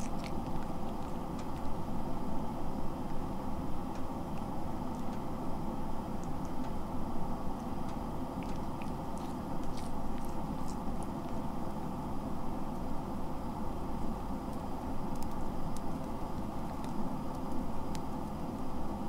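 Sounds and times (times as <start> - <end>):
cat chewing and licking: 0.0 - 2.2, 4.0 - 5.4, 6.1 - 6.8, 7.5 - 11.9, 14.0 - 18.2
low background hum: 0.0 - 19.0.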